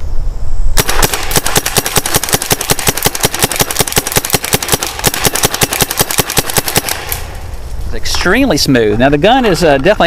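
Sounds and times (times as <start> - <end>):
paintball marker rapid pops: 0.8 - 7.4.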